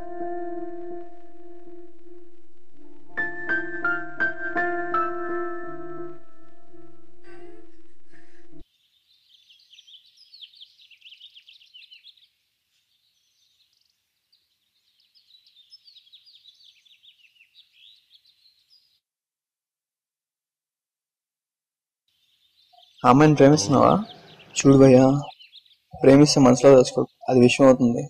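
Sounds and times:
small birds chirping: 8.2s - 19.0s, 22.1s - 28.0s.

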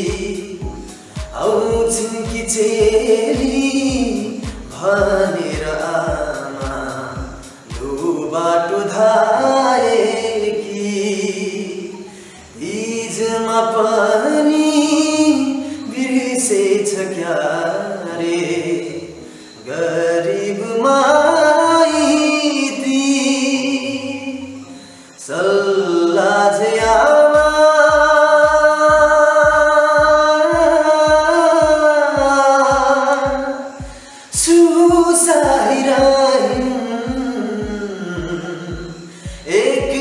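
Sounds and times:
steady low beat: 0.0s - 8.3s, 26.8s - 40.0s
man singing: 0.0s - 40.0s.

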